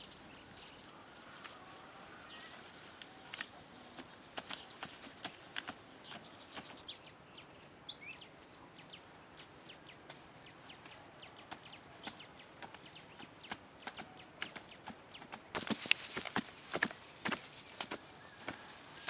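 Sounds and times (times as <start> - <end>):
digging sticks knocking hard soil: 11.5 - 18.7.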